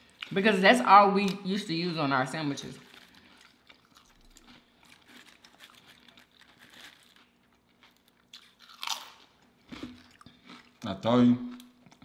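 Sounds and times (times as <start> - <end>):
chewing potato chips: 2.5 - 12.0.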